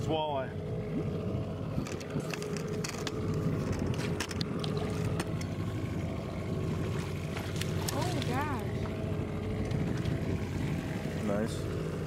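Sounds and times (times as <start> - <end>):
boat motor running: 0.0 - 12.0
fish thrashing and splashing: 1.8 - 11.1.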